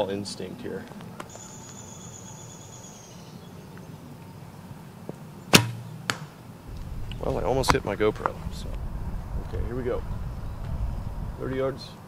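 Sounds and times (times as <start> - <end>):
low hum: 5.8 - 11.7.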